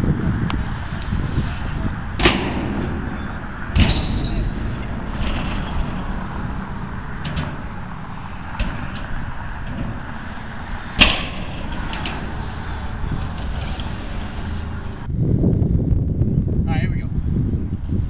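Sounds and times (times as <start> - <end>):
tyres rolling rumble: 0.0 - 16.6
bike landing bangs: 1.7 - 13.2.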